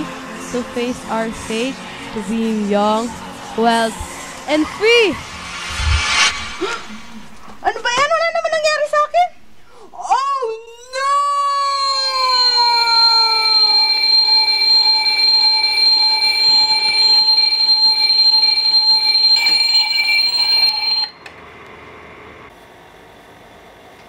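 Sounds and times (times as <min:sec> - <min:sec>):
alarm ringing: 0:03.7 - 0:07.3, 0:11.5 - 0:21.2
held cry falling in pitch: 0:10.9 - 0:14.3.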